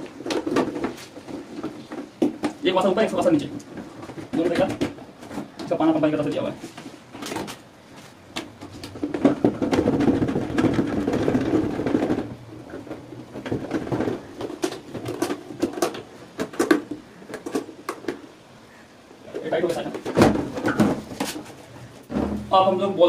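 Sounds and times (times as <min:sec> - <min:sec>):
plastic scraping and rattling: 0:00.0 - 0:05.9, 0:06.7 - 0:18.3.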